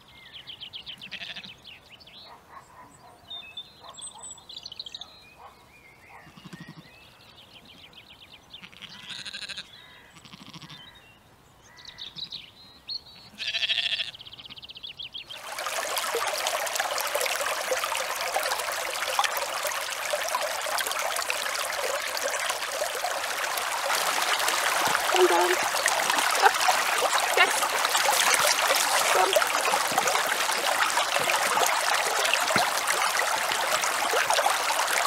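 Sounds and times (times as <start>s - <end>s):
sheep bleating: 1.1s - 1.5s, 8.6s - 10.8s, 13.4s - 14.1s
stream running over stones: 15.3s - 35.0s.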